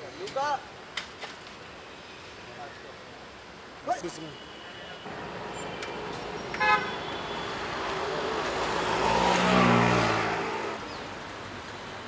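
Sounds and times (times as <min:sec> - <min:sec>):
car horn toot: 0:05.1 - 0:08.2
motor vehicle passing: 0:05.1 - 0:11.2.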